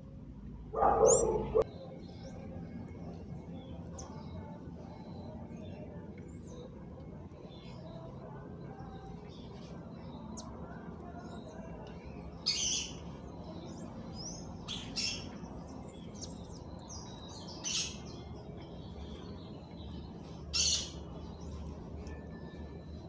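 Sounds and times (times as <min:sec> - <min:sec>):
harsh bird calls: 0:00.8 - 0:01.7, 0:12.3 - 0:21.6
faint bird twittering: 0:00.8 - 0:23.0.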